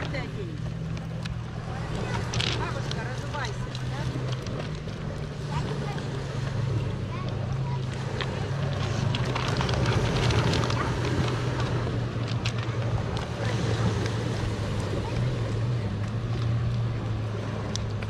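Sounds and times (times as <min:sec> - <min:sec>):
sea washing on pebbles: 0:00.0 - 0:18.0
dog crunching kibble: 0:08.0 - 0:13.4.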